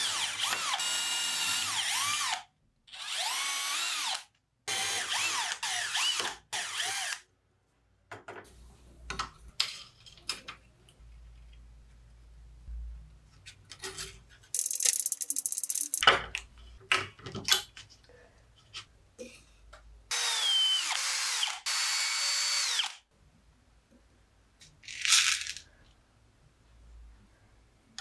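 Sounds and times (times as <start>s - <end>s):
power drill boring through metal: 0.0s - 7.2s, 20.1s - 23.0s.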